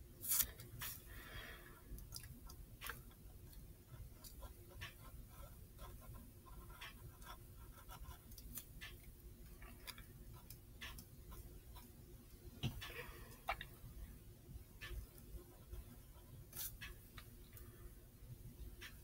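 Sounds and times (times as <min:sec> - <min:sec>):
pencil scratching on paper: 0:03.9 - 0:08.7.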